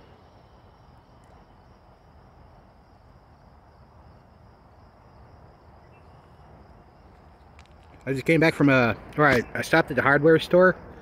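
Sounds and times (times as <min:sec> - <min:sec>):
high-pitched insect trill: 0:00.0 - 0:11.0.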